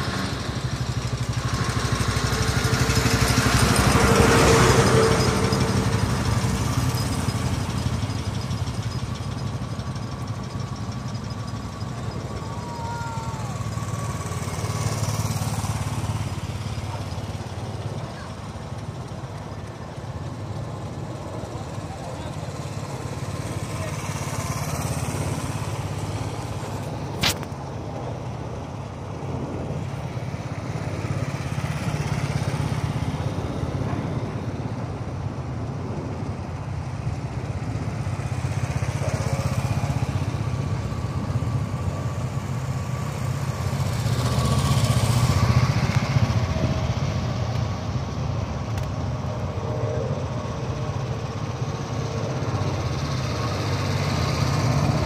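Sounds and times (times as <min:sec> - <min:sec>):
motorcycles riding past: 0:00.0 - 0:55.0.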